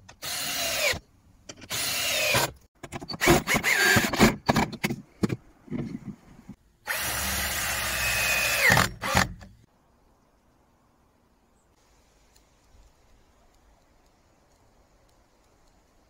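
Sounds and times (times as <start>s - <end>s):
cordless drill driving screws: 1.7s - 2.5s, 6.9s - 9.4s.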